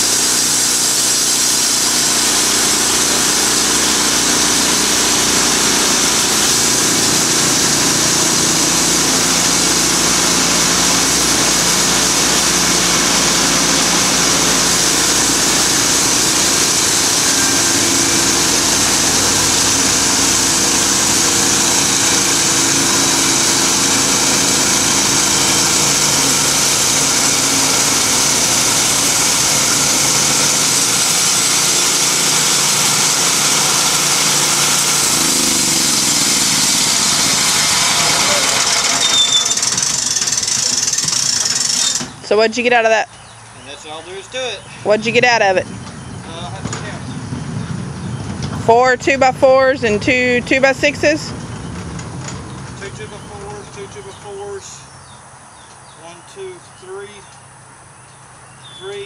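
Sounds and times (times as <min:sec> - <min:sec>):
bandsaw mill sawing wood: 0:00.0 - 0:42.3.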